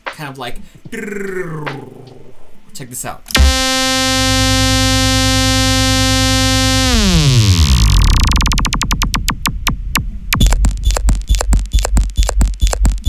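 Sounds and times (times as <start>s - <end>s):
buzzing synthesizer bass: 3.3s - 13.0s
rhythmic clicks: 3.3s - 13.0s
deep bass thumps: 3.4s - 13.0s.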